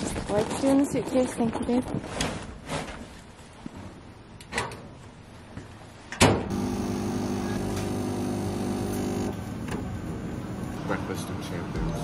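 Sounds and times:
coffee machine pump humming: 0:06.5 - 0:10.8.

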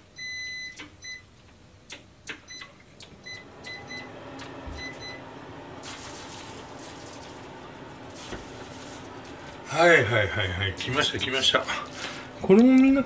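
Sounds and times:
appliance humming: 0:02.0 - 0:13.0
control panel beeping: 0:02.3 - 0:05.2.

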